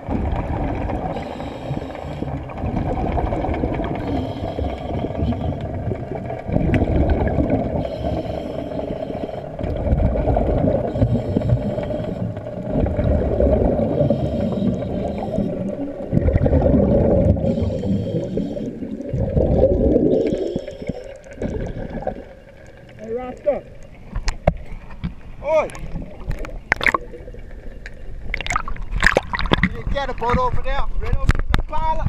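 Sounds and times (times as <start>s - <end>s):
underwater bubbles gurgling: 0.0s - 32.0s
regulator hissing on inhale: 1.1s - 2.6s, 3.9s - 5.8s, 7.7s - 9.7s, 10.8s - 12.6s, 13.8s - 16.0s, 17.3s - 19.0s, 20.1s - 22.2s.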